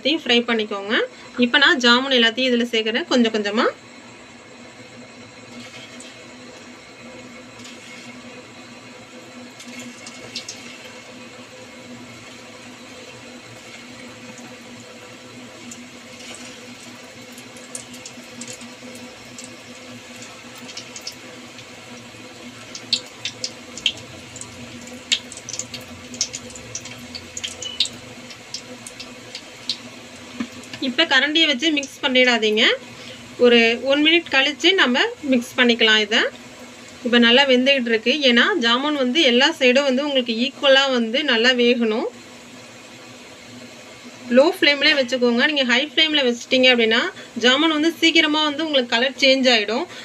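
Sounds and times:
dough deep-frying in oil: 0.0s - 50.0s
oil crackling and popping: 5.5s - 30.9s.

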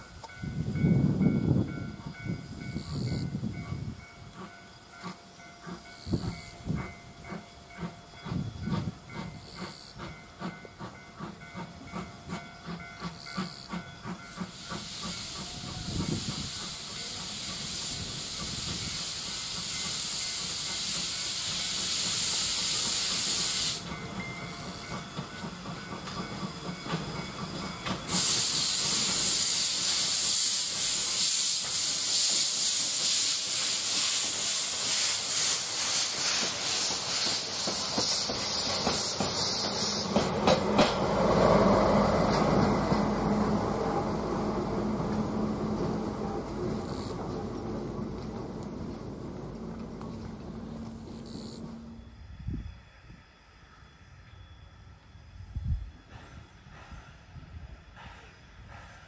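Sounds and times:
steam locomotive exhaust chuffs: 0.0s - 59.0s
steam hissing: 4.2s - 48.2s, 55.9s - 59.0s.

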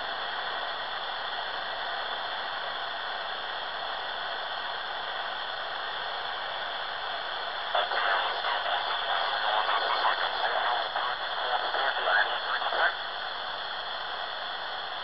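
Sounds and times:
radio static hiss: 4.4s - 15.0s.

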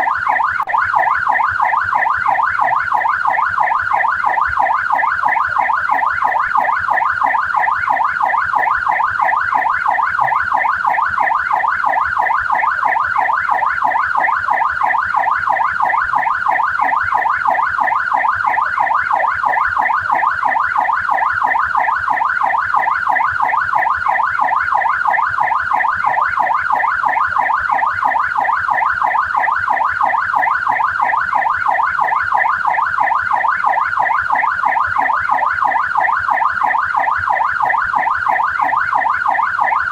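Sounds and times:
police siren yelping: 0.0s - 39.9s.

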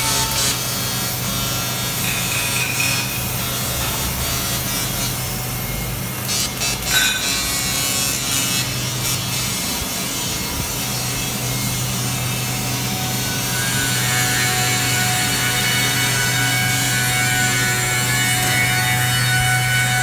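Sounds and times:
welding arc hissing and crackling: 0.0s - 20.0s.

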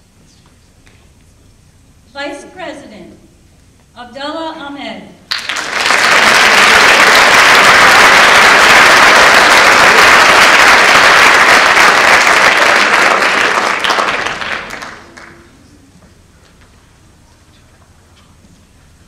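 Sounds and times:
audience applauding: 5.3s - 15.6s.

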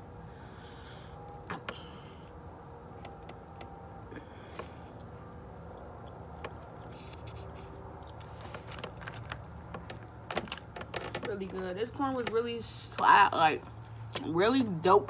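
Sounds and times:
fingers picking through seafood: 4.6s - 10.8s
chewing and mouth sounds: 4.9s - 10.7s.

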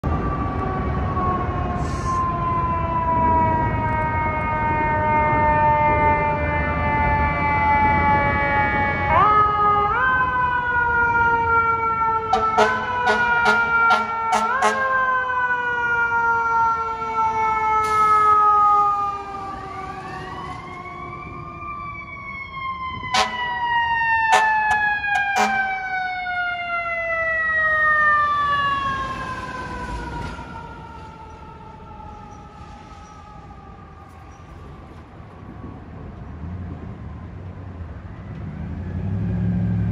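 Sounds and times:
faint second siren: 0.0s - 39.9s
fire truck mechanical siren: 0.0s - 39.9s
air horn blasts: 12.3s - 14.9s, 23.1s - 23.5s, 24.3s - 25.8s.

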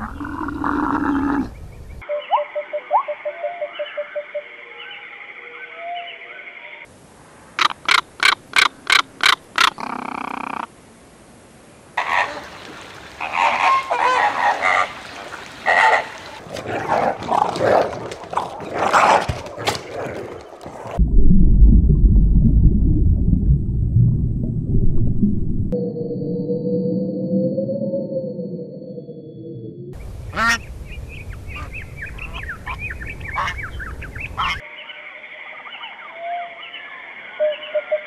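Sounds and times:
flamingos honking and gabbling: 7.6s - 10.7s, 12.0s - 17.4s, 30.3s - 30.6s, 31.5s - 38.0s
low underwater rumble: 20.9s - 27.8s.

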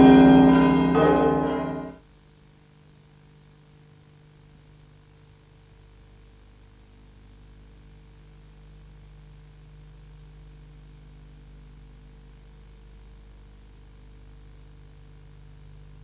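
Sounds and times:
tape hiss: 0.0s - 1.9s.

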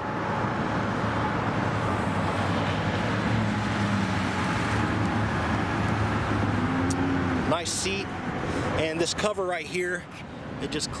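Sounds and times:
road traffic rush: 0.0s - 11.0s.

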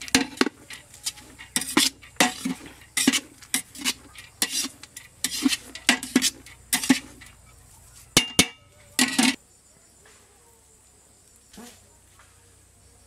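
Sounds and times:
metal spatula scraping pot: 0.0s - 9.4s
sharp metal knocks: 8.2s - 9.4s.

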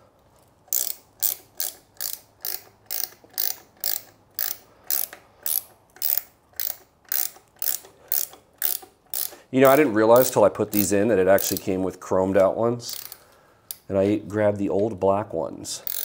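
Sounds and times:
socket ratchet clicking: 0.7s - 11.8s, 12.9s - 13.9s.

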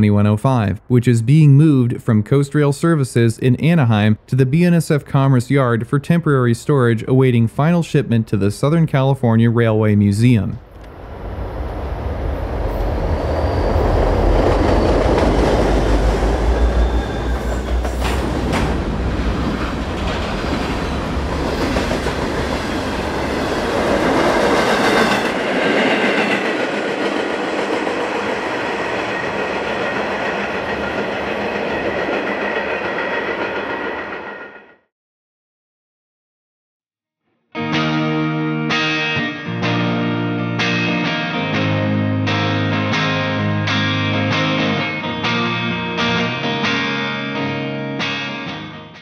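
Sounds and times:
diesel locomotive rumble: 10.7s - 34.0s
high wheel squeal: 11.2s - 15.5s, 16.2s - 18.2s
train wheels clicking over rail joints: 17.3s - 22.9s.

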